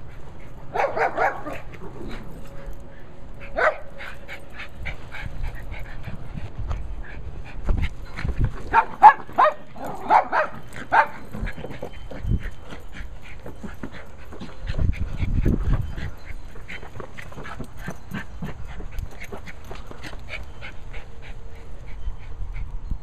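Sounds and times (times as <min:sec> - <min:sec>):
small dog barking: 0:00.8 - 0:01.6, 0:08.7 - 0:11.2.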